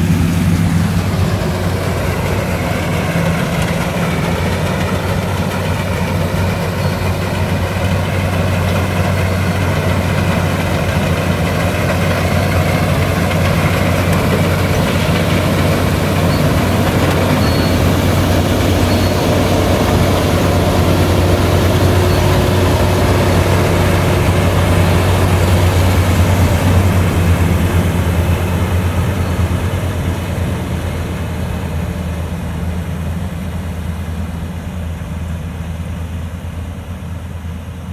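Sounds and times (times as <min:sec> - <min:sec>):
combine harvester running: 0:00.0 - 0:37.9.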